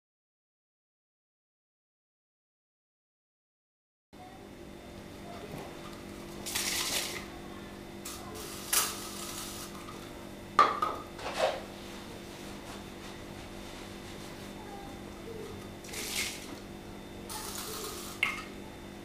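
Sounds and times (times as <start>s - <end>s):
steady low hum: 4.2s - 19.0s.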